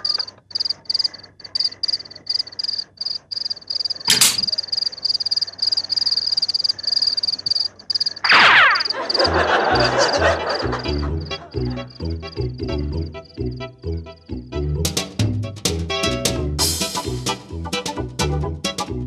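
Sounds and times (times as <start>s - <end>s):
crickets chirping: 0.0s - 14.2s.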